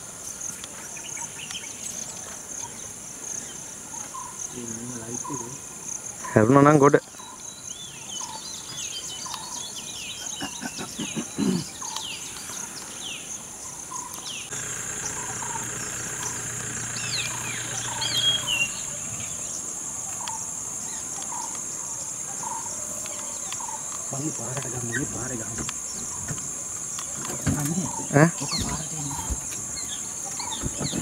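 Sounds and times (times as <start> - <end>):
insects droning: 0.0 - 31.0
faint low hum: 14.5 - 19.6
bird chirps and whistles: 17.0 - 19.4.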